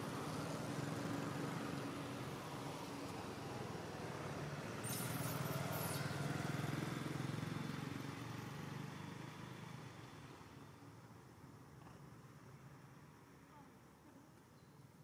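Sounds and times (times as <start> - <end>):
vehicle passing: 0.0 - 10.2.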